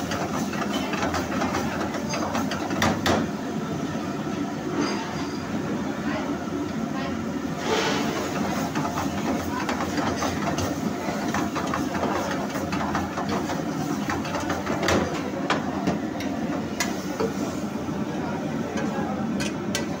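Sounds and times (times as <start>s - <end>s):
gas burner roar: 0.0s - 5.0s, 5.6s - 20.0s
food frying: 8.2s - 17.9s.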